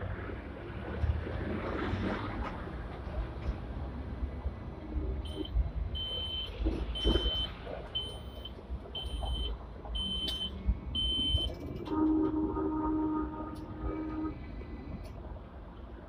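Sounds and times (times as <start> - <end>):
tram rolling over track: 0.0 - 16.0
multi-tone hum: 5.0 - 16.0
high electronic beeps: 5.3 - 11.5.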